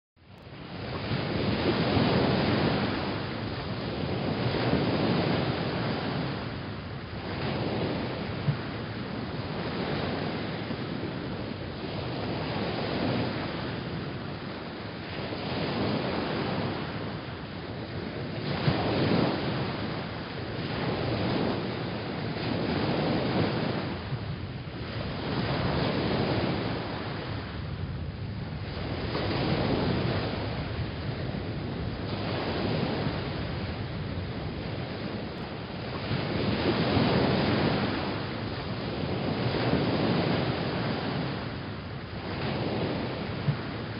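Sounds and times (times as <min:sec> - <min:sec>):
waves washing in: 0:00.4 - 0:43.9.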